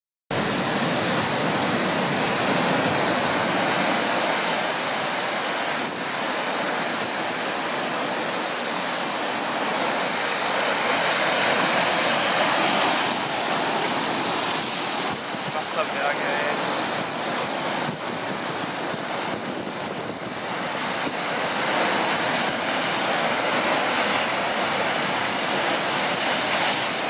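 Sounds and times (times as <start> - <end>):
ocean surf breaking on rocks: 0.3 - 27.0.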